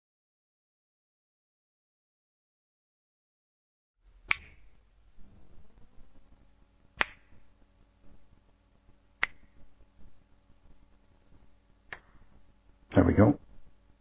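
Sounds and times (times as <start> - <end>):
finger snaps: 4.2 - 4.6, 7.0 - 7.4, 9.2 - 9.6, 11.9 - 12.2.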